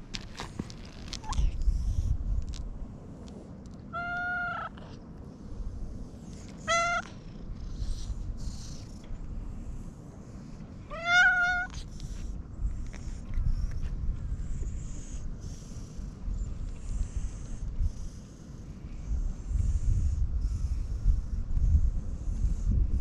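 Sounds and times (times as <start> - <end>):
cat meowing: 4.0 - 4.8, 6.6 - 7.1, 10.9 - 11.8.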